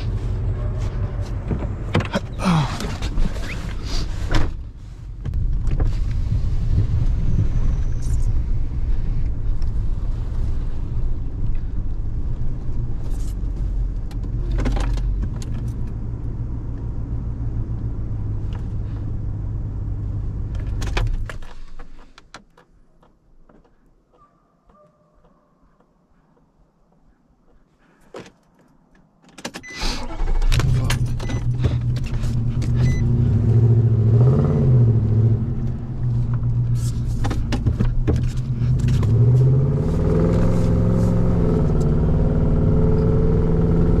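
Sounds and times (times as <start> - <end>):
truck engine rumbling: 0.0 - 22.1, 29.7 - 44.0
truck door clunking and rattling: 1.3 - 3.4.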